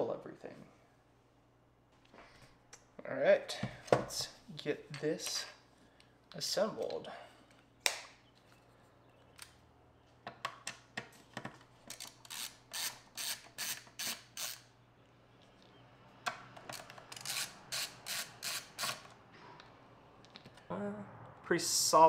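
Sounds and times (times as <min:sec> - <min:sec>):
screwdriver clicking: 0:16.6 - 0:19.1.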